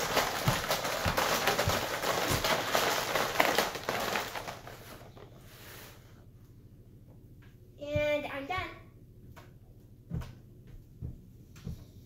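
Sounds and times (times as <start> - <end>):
plastic markers clattering in a bin: 0.0 - 5.2.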